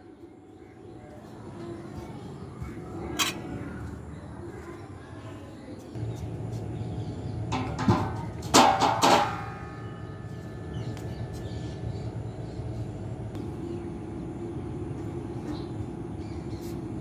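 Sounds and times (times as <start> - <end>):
metal railing bars clanking: 7.5 - 9.9.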